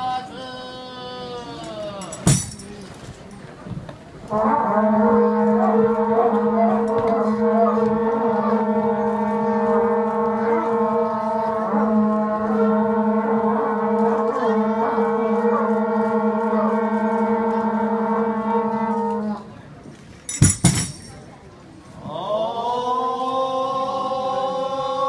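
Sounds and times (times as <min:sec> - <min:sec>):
horn blowing long low note: 0:04.2 - 0:19.8.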